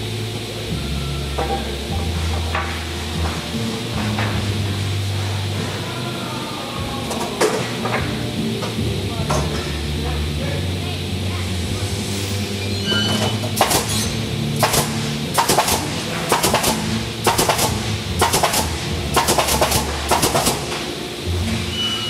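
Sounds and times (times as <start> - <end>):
machine humming: 0.0 - 22.0
nail guns firing: 13.5 - 21.0.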